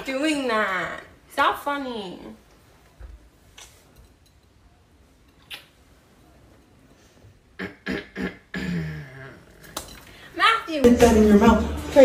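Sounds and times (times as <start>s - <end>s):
soft kiss smack: 5.4s - 5.8s.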